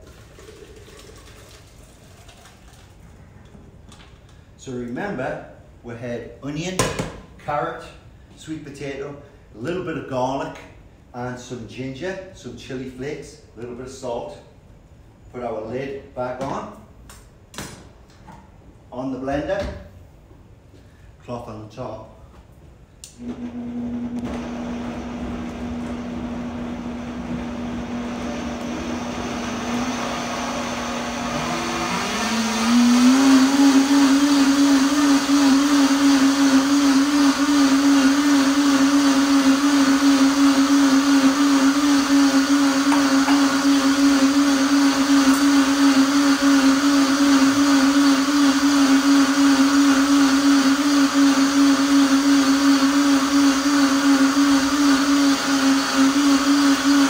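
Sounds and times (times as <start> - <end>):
blender motor running: 23.2 - 57.0.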